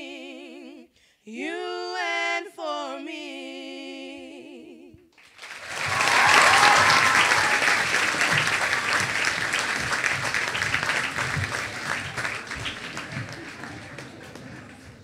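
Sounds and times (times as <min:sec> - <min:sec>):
girls' choir singing: 0:00.0 - 0:00.8
audience applause: 0:05.2 - 0:15.0.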